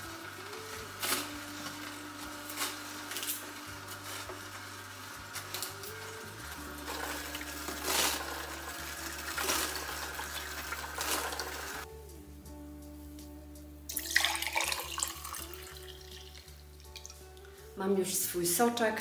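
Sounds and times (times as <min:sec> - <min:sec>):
background music: 0:00.0 - 0:19.0
running water: 0:02.8 - 0:11.8.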